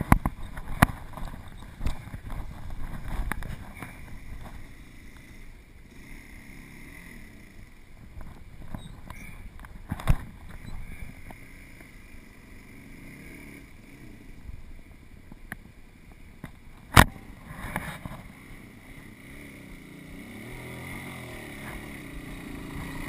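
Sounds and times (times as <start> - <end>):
dirt bike engine revving: 3.8 - 7.8, 10.6 - 14.4, 17.0 - 23.0.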